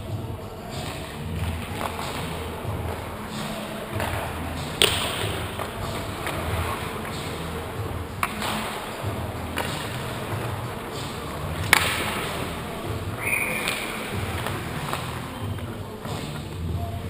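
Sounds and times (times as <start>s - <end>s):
low rumble of skating: 0.0s - 17.0s
sharp knocks of hockey sticks: 4.8s - 7.3s, 8.2s - 12.6s, 13.2s - 16.4s.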